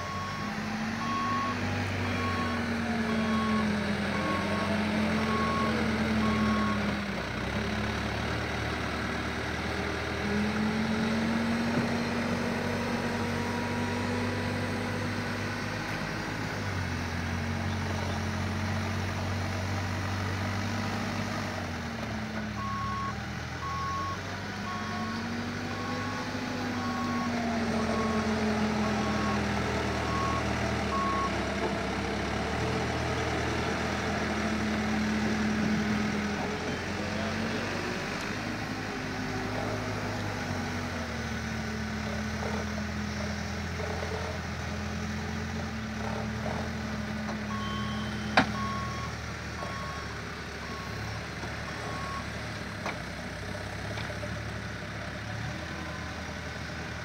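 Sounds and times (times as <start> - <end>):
reversing alarm beeping: 0.0 - 6.9, 22.6 - 31.4, 47.5 - 51.1
construction machinery engines revving: 0.0 - 57.0.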